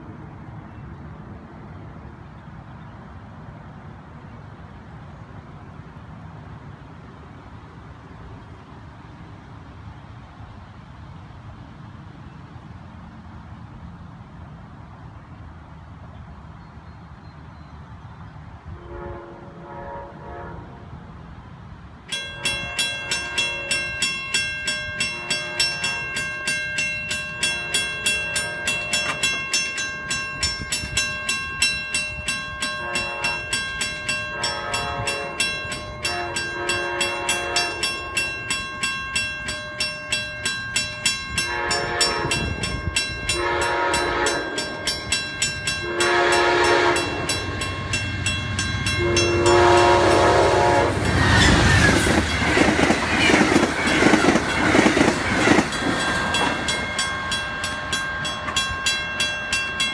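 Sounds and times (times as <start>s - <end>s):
train horn blasts: 18.7s - 21.0s, 22.4s - 24.1s, 24.9s - 26.5s, 27.1s - 29.4s, 32.5s - 38.3s, 41.3s - 51.9s
crossing bell ringing: 22.0s - 59.9s.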